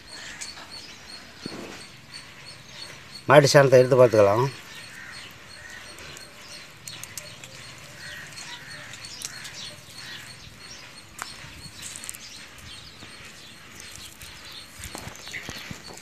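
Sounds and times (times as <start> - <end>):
small birds chirping: 0.0 - 16.0
faint clicks and crackles: 4.7 - 16.0.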